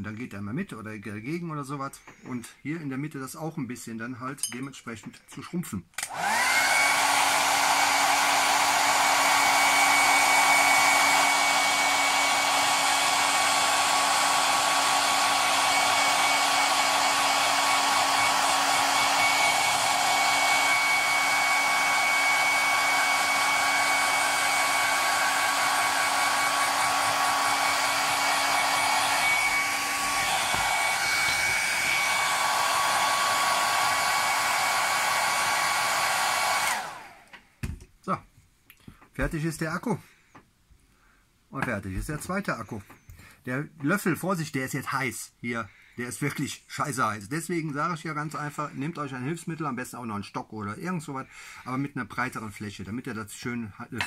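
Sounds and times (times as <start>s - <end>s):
hair dryer running: 6.0s - 37.4s.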